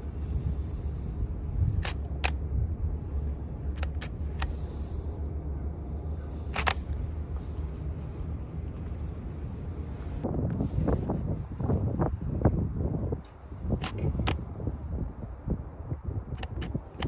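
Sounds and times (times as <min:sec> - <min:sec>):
low background rumble: 0:00.0 - 0:17.0
camera shutter clicks: 0:01.8 - 0:02.4, 0:06.5 - 0:06.9, 0:16.4 - 0:17.0.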